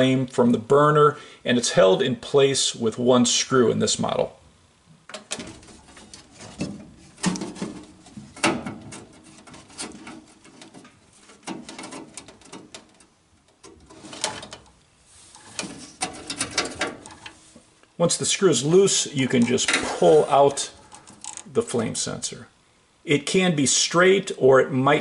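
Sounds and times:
metal clicks and scrapes: 5.1 - 17.6, 19.3 - 21.5.

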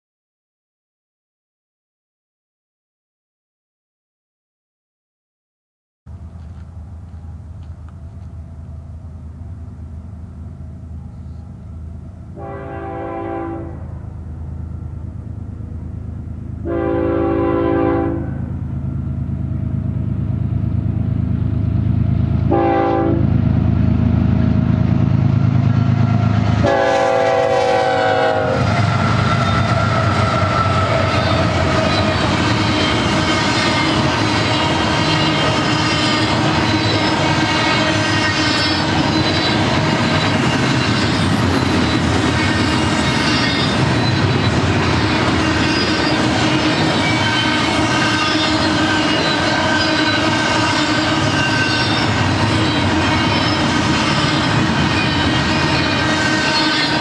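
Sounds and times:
locomotive rumble: 6.1 - 57.0
train wheels clattering: 28.3 - 57.0
wheels squealing: 28.6 - 57.0.

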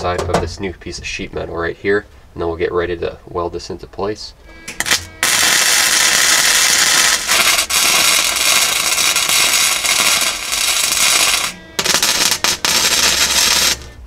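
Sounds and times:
welder arc crackling: 4.7 - 14.0.

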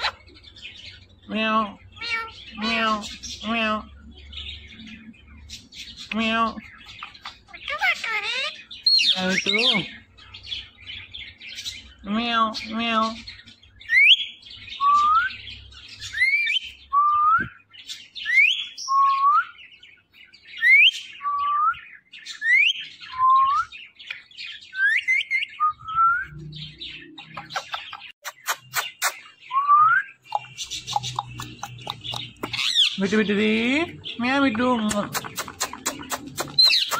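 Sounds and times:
sharp clicks: 34.9 - 36.9.

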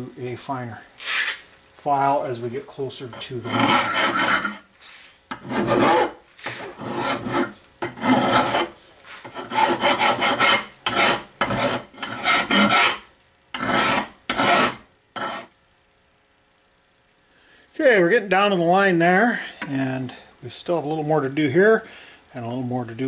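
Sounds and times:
file rasping on aluminum plate: 3.1 - 4.6, 5.3 - 15.5.

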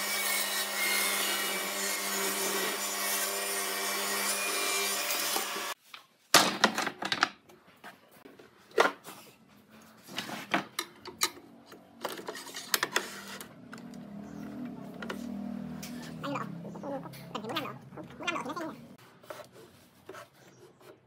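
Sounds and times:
table saw ripping a board: 0.0 - 5.8.

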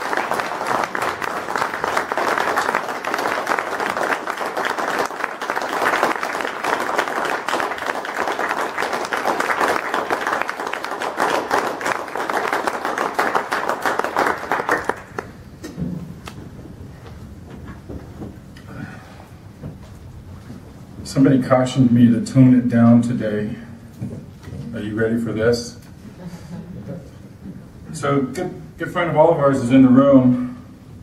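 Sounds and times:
people applauding: 0.0 - 15.4.

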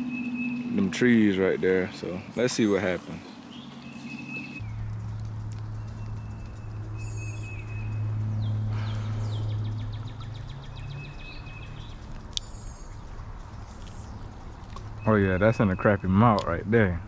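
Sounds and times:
low hum: 0.0 - 16.6
bird chirps: 0.0 - 16.7.

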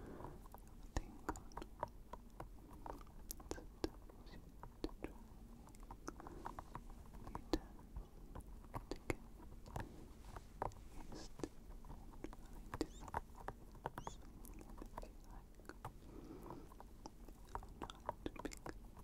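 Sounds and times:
wet mouth clicks and smacks: 8.4 - 9.9, 16.7 - 19.0.

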